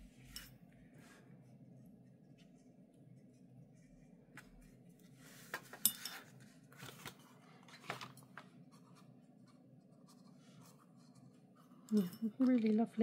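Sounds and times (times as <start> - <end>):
paintbrush strokes on paper: 0.0 - 5.6.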